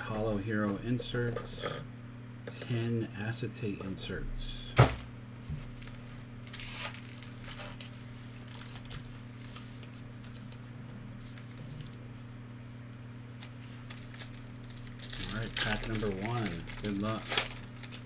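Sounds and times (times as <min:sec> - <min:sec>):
steady low hum: 0:00.0 - 0:18.0
card packs rustling: 0:05.7 - 0:10.6, 0:13.4 - 0:18.0.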